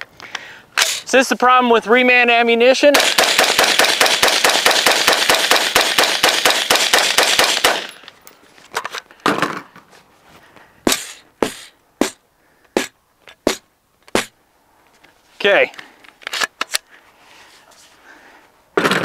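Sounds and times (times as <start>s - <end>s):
rifle shots: 2.9s - 8.0s
rifle barrel striking wooden board: 12.8s - 14.3s.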